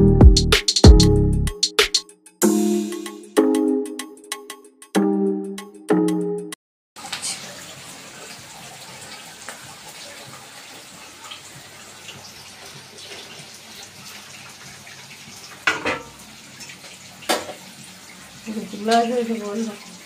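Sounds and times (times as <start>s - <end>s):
vegetables sizzling in a pan: 15.4s - 20.0s.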